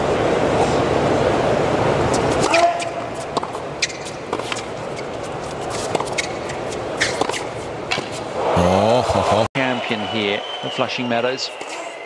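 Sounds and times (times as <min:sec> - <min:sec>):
crowd murmur: 0:08.1 - 0:09.6.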